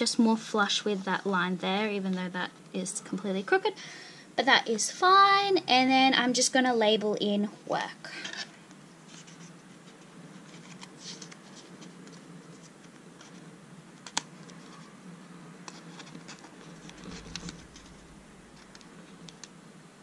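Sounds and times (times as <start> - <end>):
paper stickers scratching and clicking: 15.7 - 18.0.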